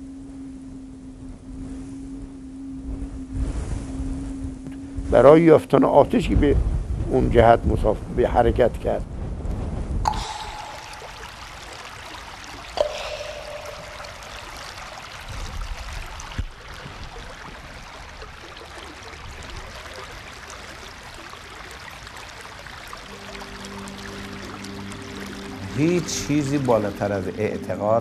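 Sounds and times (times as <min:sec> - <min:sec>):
sudden splash with plop: 0:10.1 - 0:17.6
water rushing over rocks: 0:10.1 - 0:27.1.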